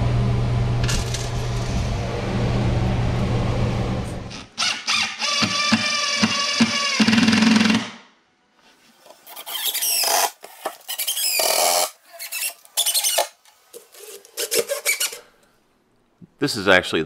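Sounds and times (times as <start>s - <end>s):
high squeaks and squeals: 4.3s - 7.9s, 9.2s - 13.4s, 14.0s - 15.3s
impact driver driving screw: 4.3s - 8.0s.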